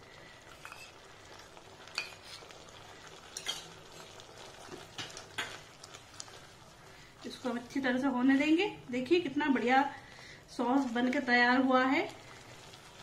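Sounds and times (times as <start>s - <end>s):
sauce sizzling and bubbling: 0.0s - 13.0s
spatula scraping pan: 0.6s - 1.0s.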